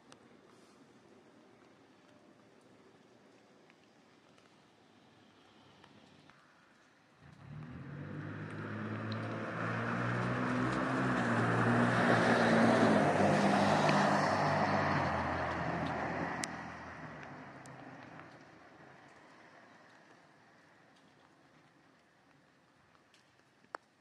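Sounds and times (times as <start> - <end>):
tyre hiss on wet street: 2.2 - 22.9
vehicle engine hum: 7.2 - 19.5.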